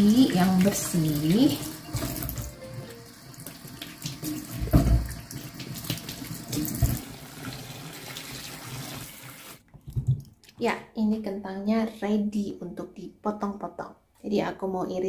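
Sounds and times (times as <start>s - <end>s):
tap water running into sink: 0.0s - 9.6s.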